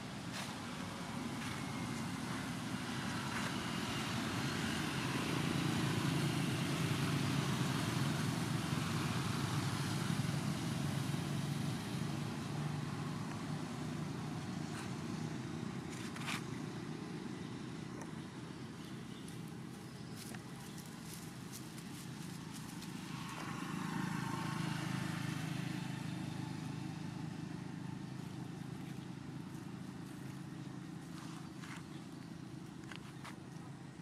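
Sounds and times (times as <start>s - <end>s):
vehicle passing: 21.7s - 33.0s.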